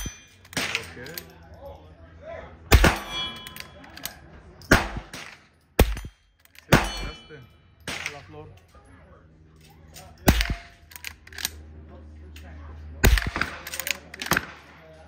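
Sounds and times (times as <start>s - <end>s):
steel targets ringing: 0.0s - 1.0s, 2.7s - 4.0s, 5.8s - 8.3s
rifle shots: 2.7s - 3.3s, 4.7s - 7.2s, 10.3s - 11.2s, 13.0s - 14.8s.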